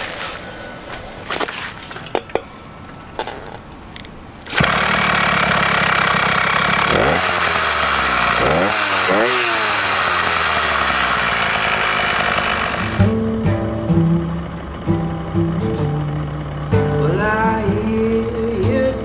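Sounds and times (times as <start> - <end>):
two-stroke engine running: 4.4 - 19.0.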